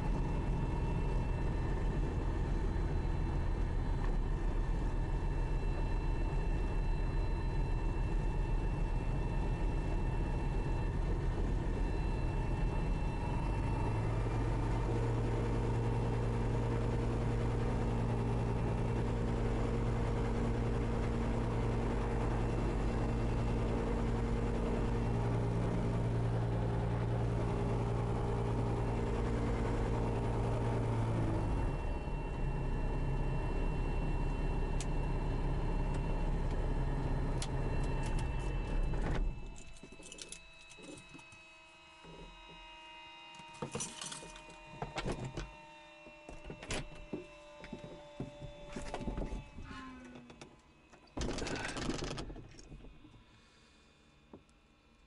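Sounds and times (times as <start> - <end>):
aircraft engine running: 0.0 - 54.4
faint steady tones: 0.0 - 55.0
clicks and knocks in cockpit: 46.2 - 53.2.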